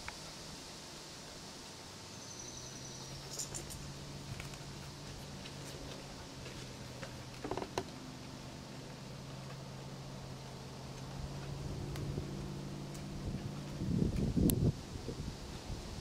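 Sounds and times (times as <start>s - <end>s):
leaves snapping and rustling: 10.9s - 12.2s.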